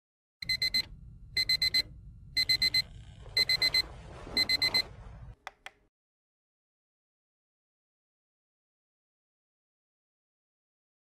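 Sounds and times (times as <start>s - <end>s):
digital alarm clock beeping: 0.4s - 3.8s, 4.4s - 4.9s.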